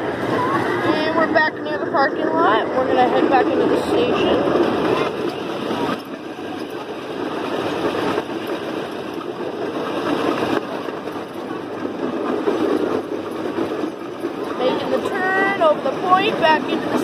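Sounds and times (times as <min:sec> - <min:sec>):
miniature train running on track: 0:00.0 - 0:17.0.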